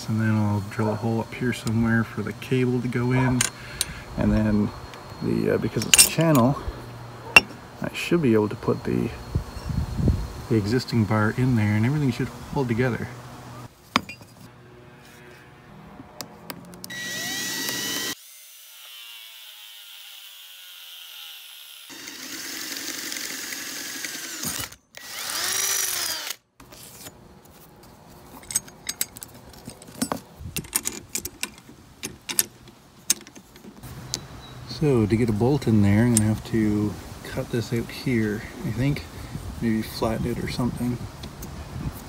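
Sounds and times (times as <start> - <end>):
power drill boring through steel: 16.9 - 26.4
hardware clicking and knocking: 28.4 - 34.2.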